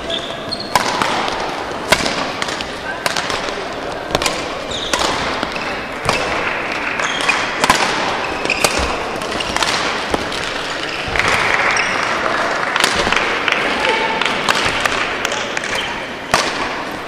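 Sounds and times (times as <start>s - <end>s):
shoes squeaking on court floor: 0.0s - 12.3s
hall background noise: 0.0s - 17.0s
rackets hitting shuttlecock: 0.0s - 17.0s.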